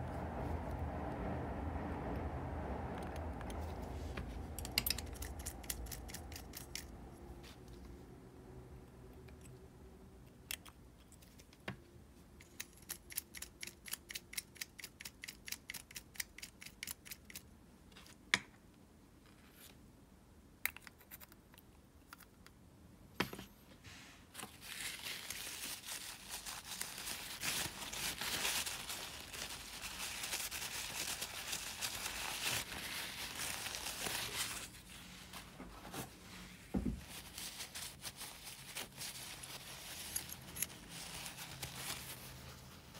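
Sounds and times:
paper tissue rustling: 0:23.9 - 0:42.9.

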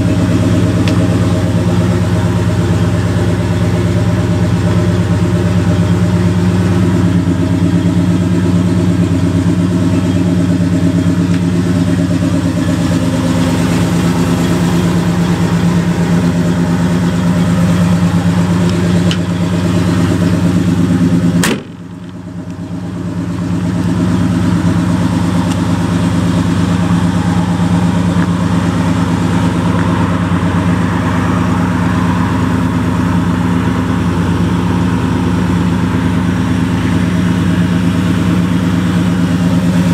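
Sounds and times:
truck engine idling: 0:00.0 - 0:39.9
sharp knock: 0:21.4 - 0:21.8.

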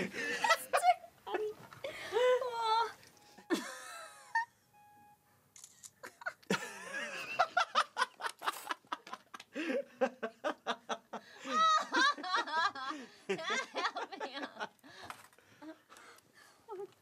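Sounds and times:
people laughing: 0:00.0 - 0:01.5, 0:06.0 - 0:14.8
short electronic beep: 0:04.7 - 0:05.2.

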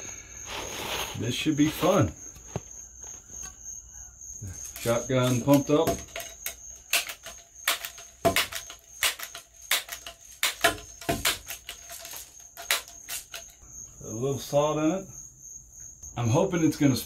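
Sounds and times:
cricket trill: 0:00.0 - 0:17.0
bb gun clicks and knocks: 0:04.7 - 0:13.5.

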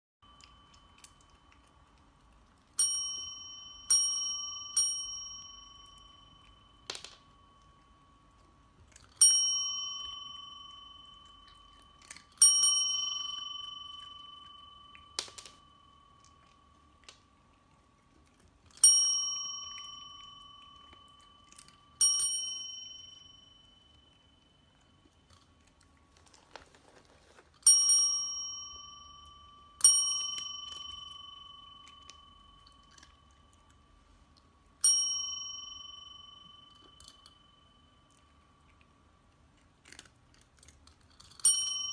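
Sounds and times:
desk bell ringing: 0:02.8 - 0:17.2, 0:18.8 - 0:25.3, 0:27.6 - 0:34.1, 0:34.8 - 0:38.4, 0:41.4 - 0:41.9.

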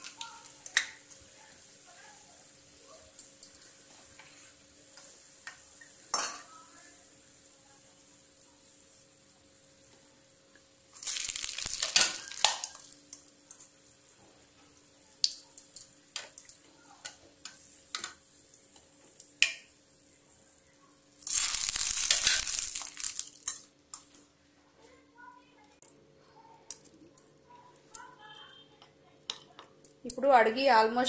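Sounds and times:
oil sizzling and splashing: 0:10.8 - 0:20.3, 0:21.0 - 0:24.2.

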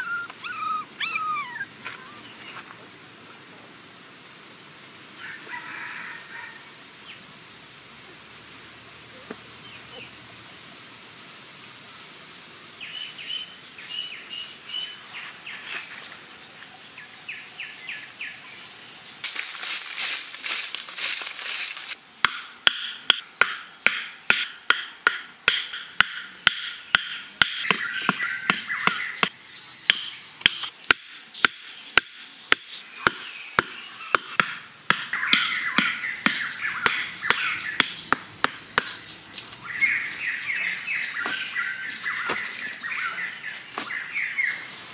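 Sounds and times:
birds chirping: 0:00.0 - 0:03.5, 0:24.8 - 0:44.9.

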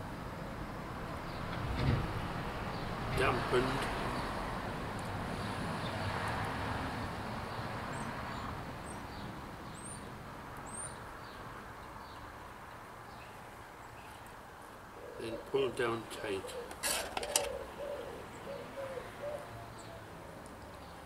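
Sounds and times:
outdoor background noise: 0:00.0 - 0:21.0.

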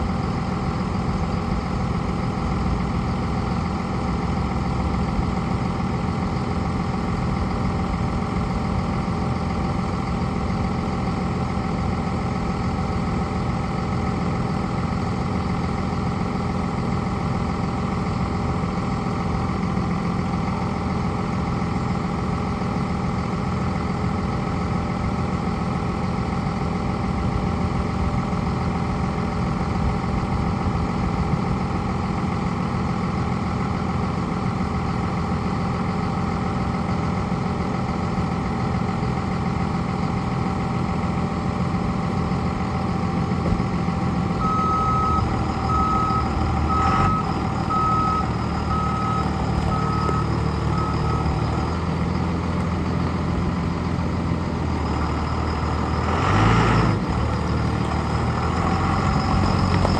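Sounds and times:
truck engine running: 0:00.0 - 0:59.9
back-up alarm beeping: 0:44.4 - 0:51.5.

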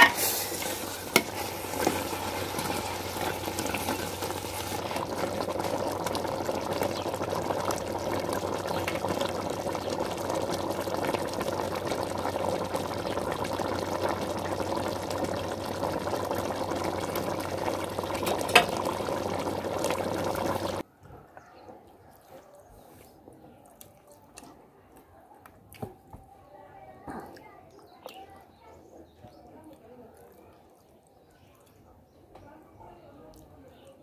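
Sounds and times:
stew bubbling in a pot: 0:00.0 - 0:20.9.

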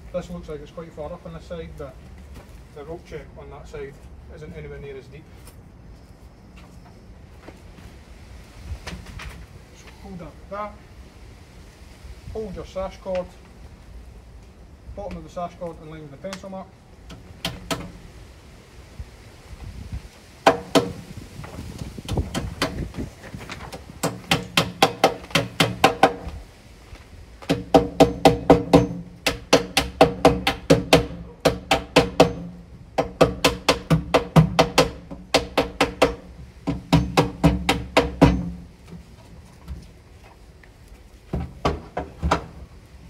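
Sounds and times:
hammer driving nails: 0:17.1 - 0:17.9, 0:22.1 - 0:22.9, 0:24.0 - 0:26.3, 0:27.5 - 0:38.6.

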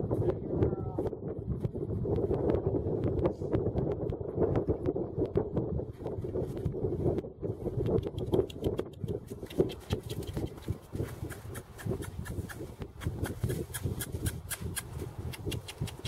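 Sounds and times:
wind rumbling on microphone: 0:00.0 - 0:16.0
hooves crunching in snow: 0:05.8 - 0:16.0
footsteps crunching in snow: 0:09.6 - 0:12.8.

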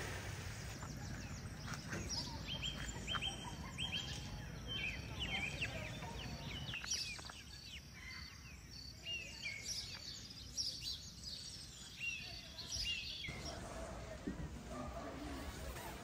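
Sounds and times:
small birds chirping: 0:00.0 - 0:14.2.

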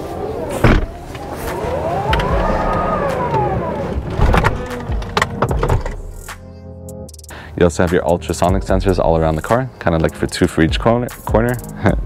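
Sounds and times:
electric actuator whine: 0:00.2 - 0:05.1.

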